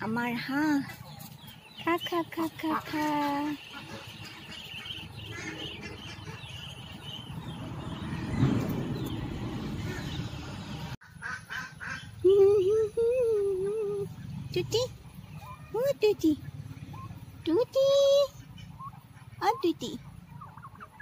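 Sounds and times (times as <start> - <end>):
chickens clucking: 0.0 - 21.0
ducks quacking: 0.6 - 12.2, 18.1 - 21.0.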